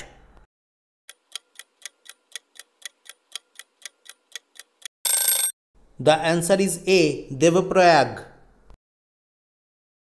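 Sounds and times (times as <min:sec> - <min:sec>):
clock ticking: 0:01.1 - 0:04.9.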